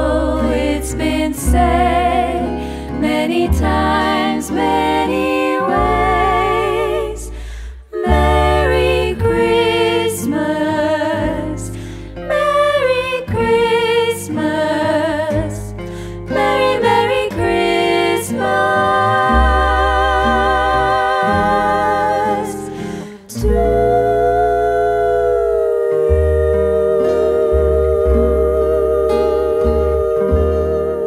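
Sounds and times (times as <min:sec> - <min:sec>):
plucked double bass: 0:00.0 - 0:31.0
women singing in harmony: 0:00.0 - 0:31.0
strummed acoustic guitar: 0:26.1 - 0:31.0.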